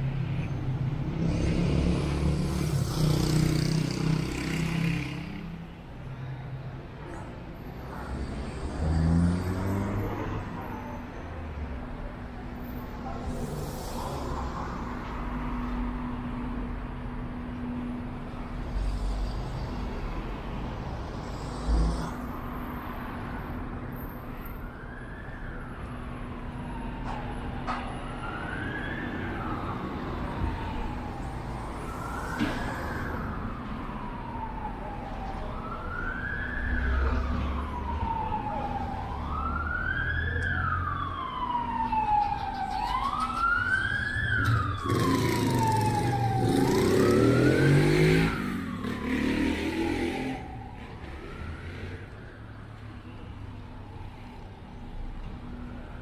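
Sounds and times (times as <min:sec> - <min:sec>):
street traffic noise: 0:00.0 - 0:56.0
emergency siren wailing: 0:23.8 - 0:56.0.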